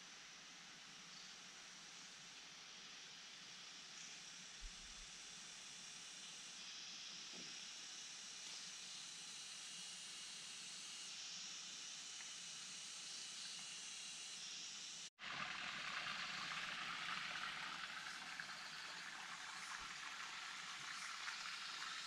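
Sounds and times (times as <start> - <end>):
rushing water hiss: 4.4 - 22.0.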